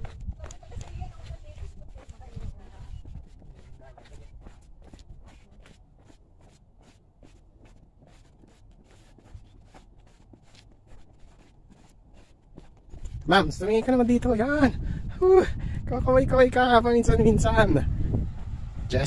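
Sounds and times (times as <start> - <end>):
footsteps on pavement: 0.0 - 15.5
low rumble: 14.2 - 19.0.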